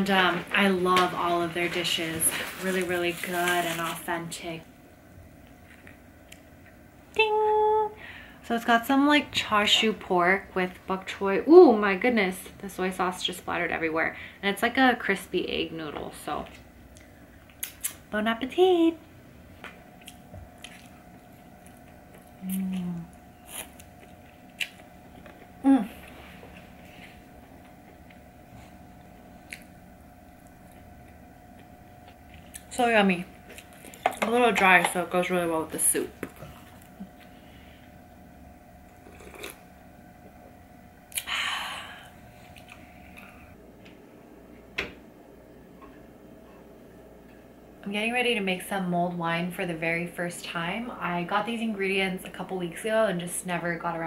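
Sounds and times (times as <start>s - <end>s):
wet chewing: 20.0s - 26.1s, 29.4s - 29.7s
person humming mm: 22.4s - 23.2s, 25.6s - 26.1s
slurping noodles: 39.0s - 39.6s.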